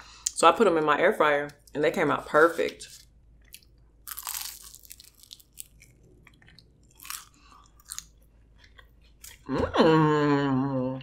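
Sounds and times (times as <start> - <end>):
crunchy bite and chewing: 3.4 - 9.5.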